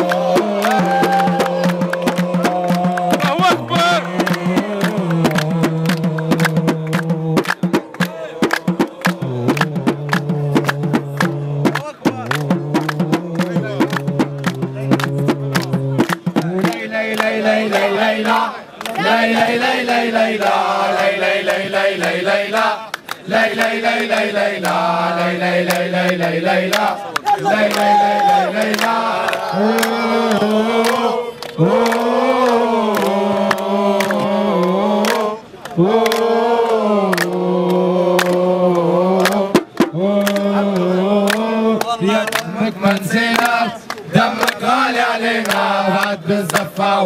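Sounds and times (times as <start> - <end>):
man singing into a microphone: 0.0 - 17.0, 29.4 - 44.8
hand claps: 0.0 - 46.9
men chanting in unison: 0.0 - 47.0.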